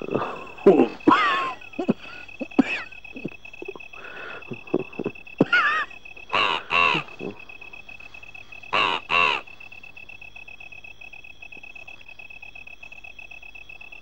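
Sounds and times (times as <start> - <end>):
bird harsh cawing calls: 5.4 - 7.7, 8.6 - 9.6.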